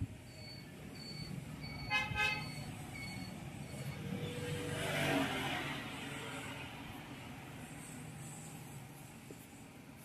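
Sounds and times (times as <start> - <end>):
vehicle horn honks: 1.9 - 2.6
vehicle passing: 2.7 - 9.2.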